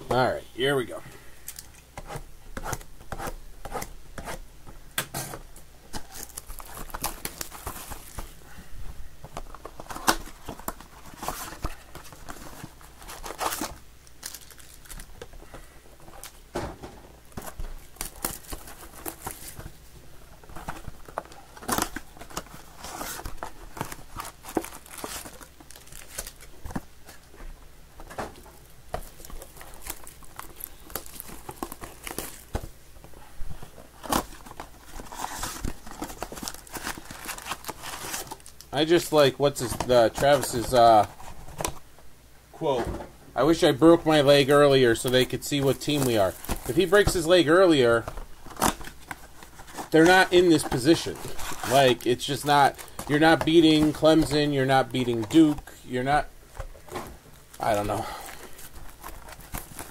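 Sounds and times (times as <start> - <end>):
foil wrappers crinkling: 5.9 - 8.5, 9.4 - 16.4, 17.2 - 27.4, 28.0 - 32.7, 33.7 - 41.8, 43.4 - 59.9
cardboard tearing: 20.6 - 26.5, 29.0 - 32.6, 34.0 - 38.5, 45.5 - 55.6.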